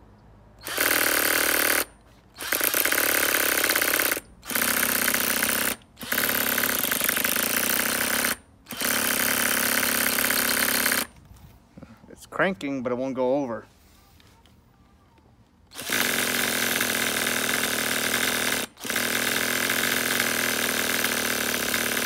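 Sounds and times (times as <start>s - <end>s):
small engine cranking: 0.6s - 11.1s, 15.7s - 22.0s
cordless drill spinning: 0.6s - 11.2s, 15.7s - 22.0s.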